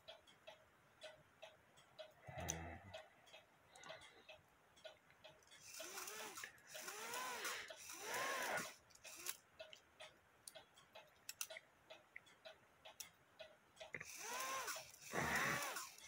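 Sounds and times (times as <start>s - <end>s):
clock ticking faintly: 0.0s - 16.0s
person breathing: 2.2s - 4.4s, 6.4s - 8.6s.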